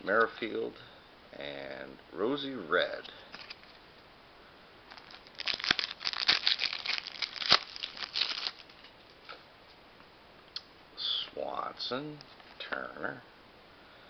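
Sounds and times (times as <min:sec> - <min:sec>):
wrapper tearing and crinkling: 0:04.9 - 0:08.9.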